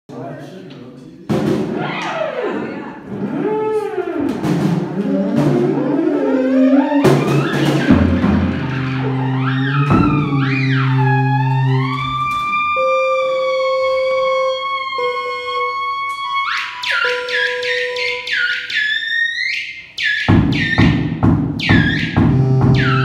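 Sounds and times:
drum hits: 1.3s - 1.9s, 4.2s - 5.9s, 7.0s - 11.1s, 20.3s - 23.0s
theremin swooping: 1.7s - 23.0s
sustained low notes: 2.6s - 16.0s, 22.2s - 23.0s.

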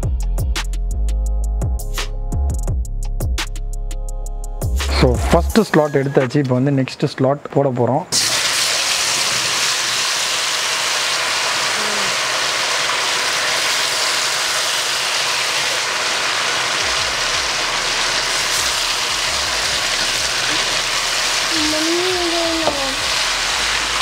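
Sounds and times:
fries sizzling in hot oil: 8.2s - 24.0s.

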